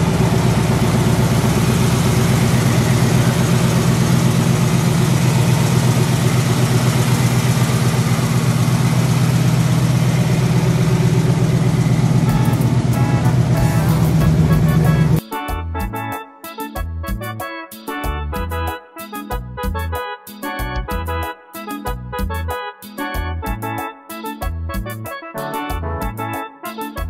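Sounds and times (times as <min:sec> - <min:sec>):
truck engine idling: 0:00.0 - 0:15.2.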